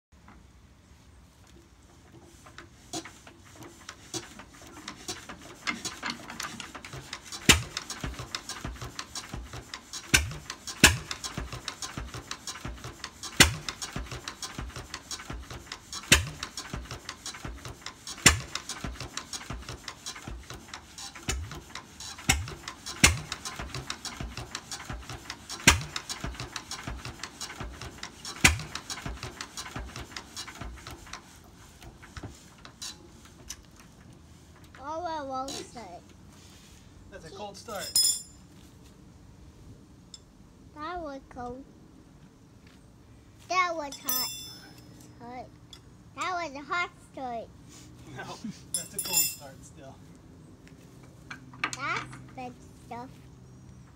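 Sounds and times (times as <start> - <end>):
diesel engine clattering: 2.1 - 36.0
sharp loud engine knock: 10.1 - 17.6, 18.2 - 19.7.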